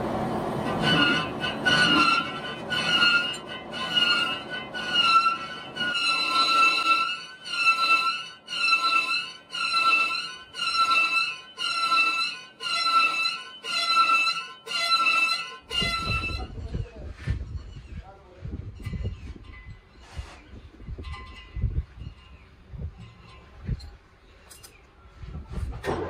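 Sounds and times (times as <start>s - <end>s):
lathe tool squealing on metal: 0.6s - 18.0s.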